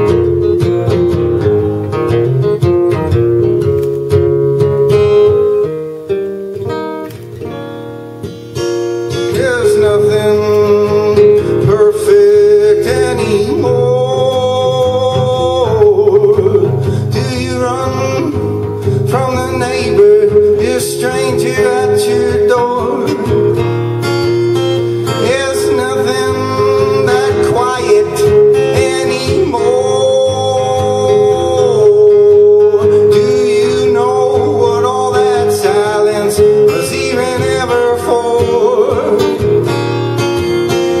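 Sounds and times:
strummed acoustic guitar: 0.0s - 41.0s
man singing: 9.1s - 23.8s, 24.9s - 39.8s.

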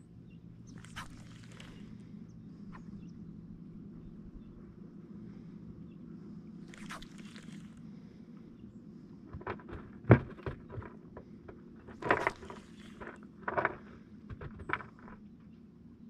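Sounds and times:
low steady hum: 0.0s - 16.0s
fishing rod and reel handling: 10.6s - 15.2s.

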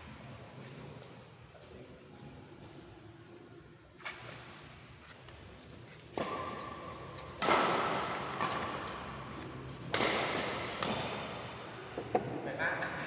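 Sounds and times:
rackets hitting shuttlecock: 6.1s - 12.4s.

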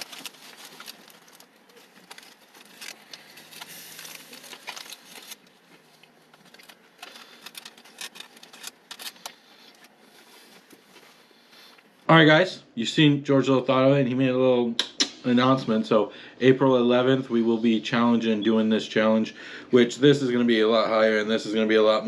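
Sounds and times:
clicks and rustles of handling: 0.0s - 11.9s.

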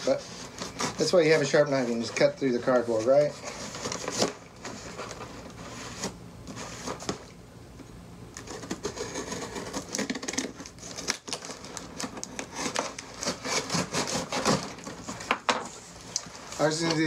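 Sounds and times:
knife cutting cardboard: 8.4s - 15.0s.

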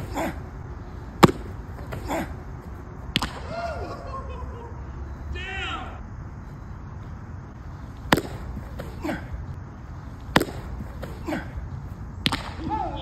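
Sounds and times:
baseball smacking into mitt: 1.2s - 2.3s, 3.1s - 3.5s, 7.9s - 9.4s, 10.2s - 12.8s.

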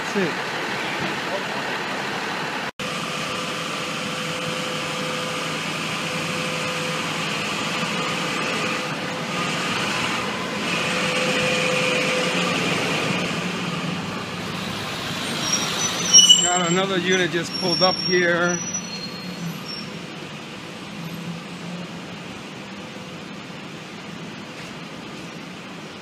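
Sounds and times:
vehicle engines idling and running: 0.0s - 26.0s
steady hum: 2.8s - 15.0s.

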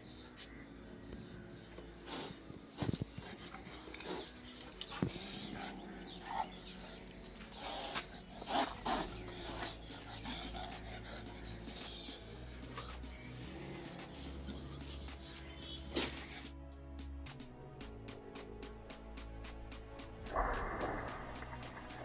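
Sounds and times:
dog sniffing and panting: 1.8s - 16.5s.

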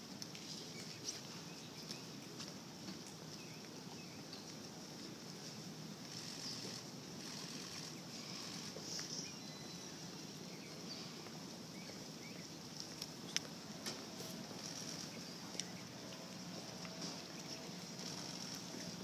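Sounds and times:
steady hiss: 0.0s - 19.0s
faint chirps: 6.0s - 12.6s.

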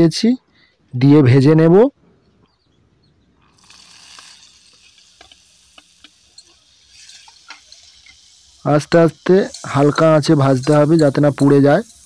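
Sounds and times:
vegetables sizzling in oil: 3.5s - 12.0s.

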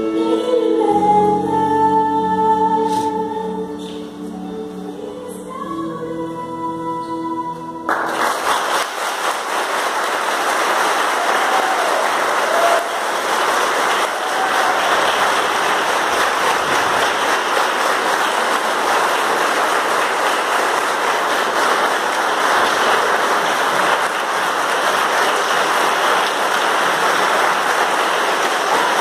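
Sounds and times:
audience applauding: 7.9s - 29.0s.

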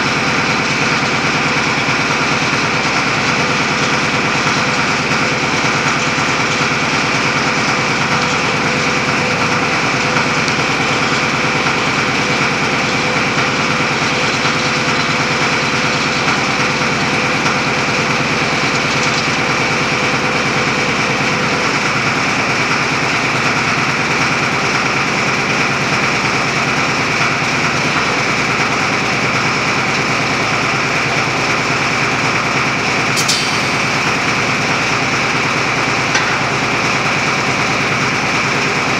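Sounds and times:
roof-bolting rig running: 0.0s - 38.9s
steady machine tone: 33.1s - 38.9s
brief sharp high sound: 33.2s - 35.8s.

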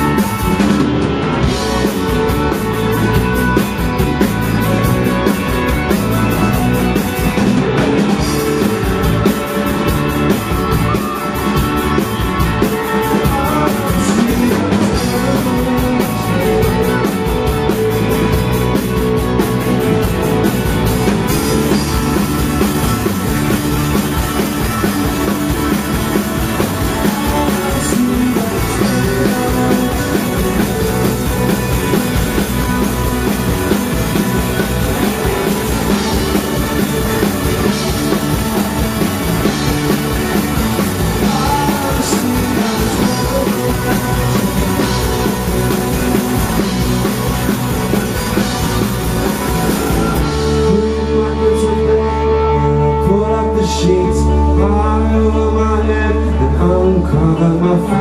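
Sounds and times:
rock band playing live: 0.0s - 58.0s
person singing: 12.6s - 18.5s, 24.4s - 32.9s, 40.4s - 47.8s, 49.8s - 58.0s.

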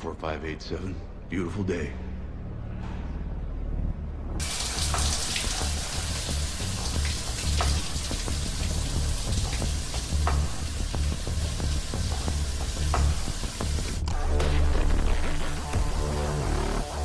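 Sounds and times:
pulsing bass throb music: 3.4s - 17.0s
shower water spraying: 4.4s - 14.0s
water drips and splashes: 4.4s - 14.0s.

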